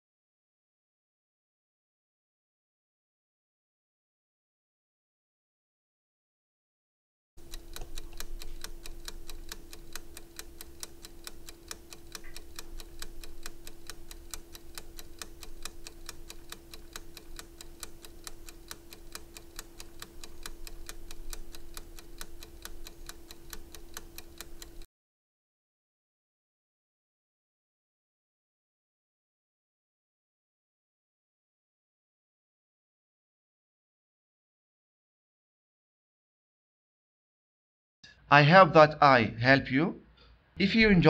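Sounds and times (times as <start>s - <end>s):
fast clock ticking: 7.4s - 24.9s.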